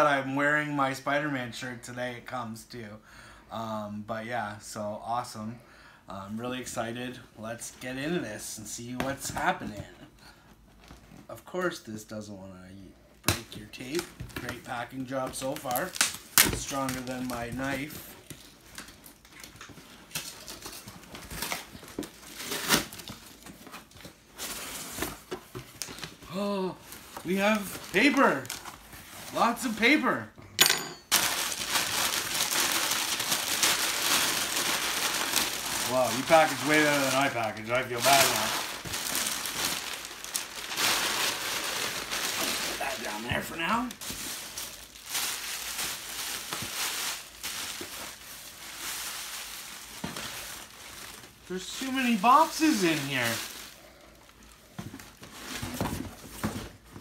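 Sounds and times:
cardboard rustling: 0:31.1 - 0:53.8, 0:54.5 - 0:57.0
cardboard scraping and crinkling: 0:54.9 - 0:57.0.

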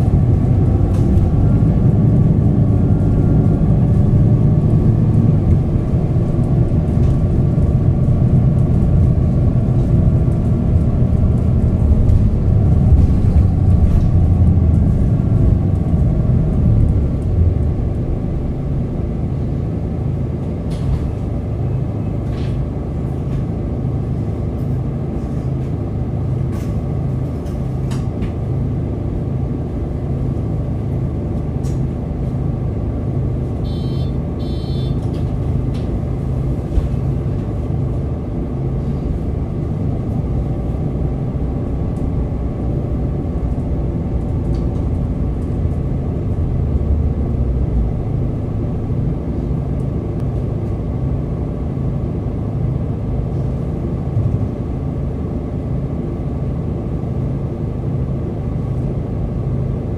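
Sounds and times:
bus diesel engine running: 0:00.0 - 0:59.9
high electronic beeps: 0:33.7 - 0:34.9.

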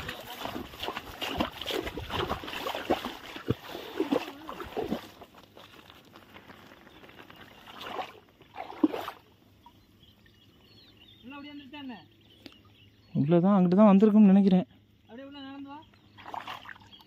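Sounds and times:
water sloshing and splashing: 0:00.0 - 0:10.3, 0:16.1 - 0:17.0
reeds rustling and snapping: 0:04.9 - 0:08.2.

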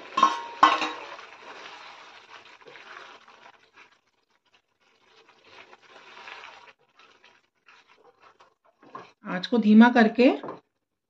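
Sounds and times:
wooden spatula stirring vegetables: 0:00.0 - 0:11.0
steel bowl knocking on pan rim: 0:00.2 - 0:01.0.

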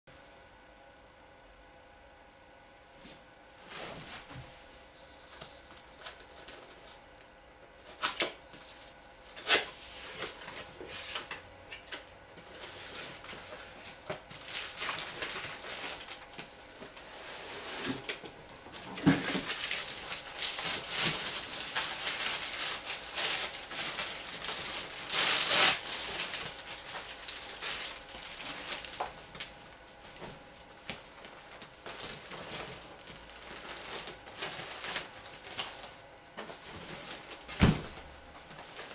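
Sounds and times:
vinyl pool float rustling: 0:03.0 - 0:07.1, 0:12.3 - 0:38.9
plastic bag crinkling: 0:12.8 - 0:17.1, 0:18.7 - 0:29.6, 0:30.2 - 0:38.9.

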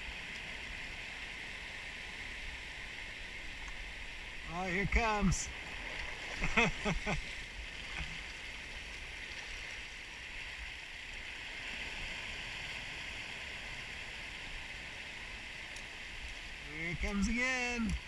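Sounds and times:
surf washing over rocks: 0:00.0 - 0:18.0
person calling out: 0:16.7 - 0:18.0.

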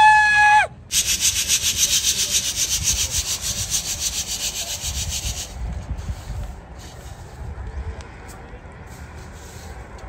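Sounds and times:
rhythmic rasping scrape: 0:00.9 - 0:07.5.

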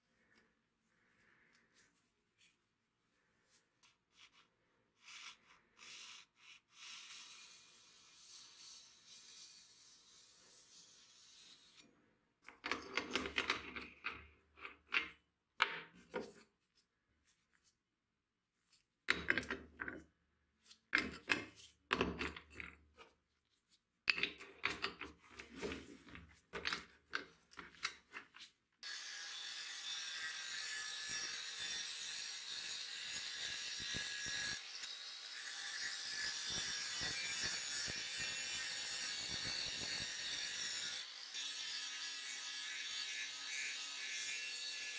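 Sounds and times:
angle grinder grinding steel: 0:28.9 - 0:44.9.

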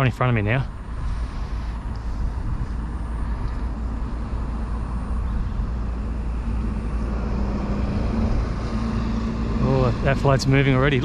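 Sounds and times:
low steady hum: 0:00.0 - 0:11.0
outdoor rumble and hiss: 0:00.0 - 0:11.0.

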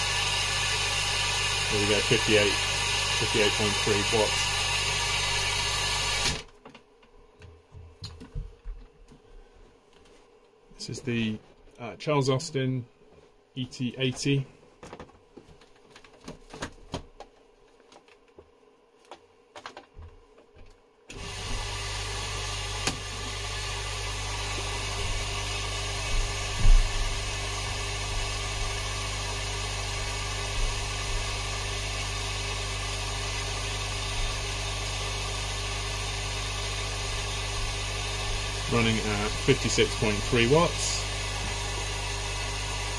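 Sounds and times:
air pump humming: 0:00.0 - 0:06.5, 0:21.1 - 0:42.9.

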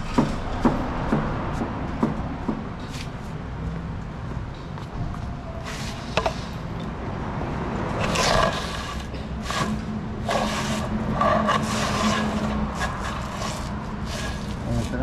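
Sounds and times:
wooden board scraping on concrete: 0:08.0 - 0:15.0.

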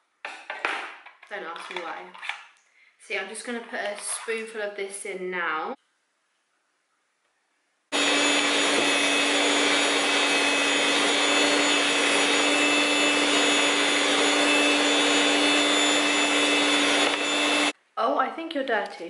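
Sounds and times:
stand mixer motor whining: 0:07.9 - 0:17.8.

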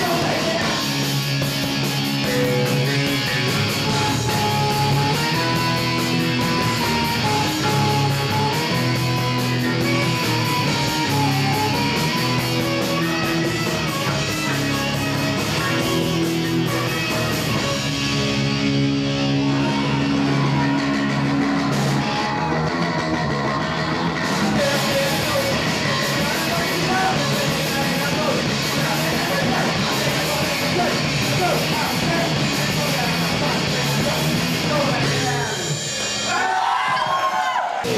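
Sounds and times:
electric guitar chords: 0:00.0 - 0:36.3
drums and cymbals: 0:00.0 - 0:37.9.

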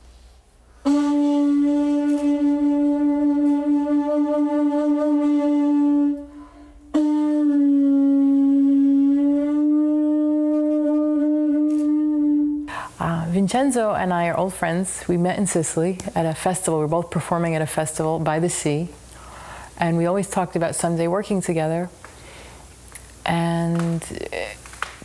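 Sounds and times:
conch shell trumpet blasts: 0:00.8 - 0:12.7.

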